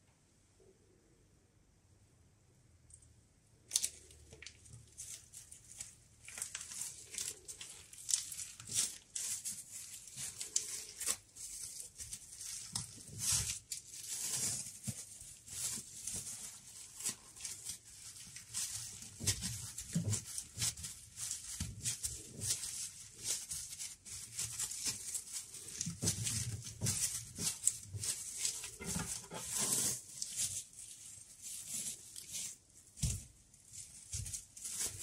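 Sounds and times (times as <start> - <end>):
soft knocks and handling noise: 24.4 - 35.0.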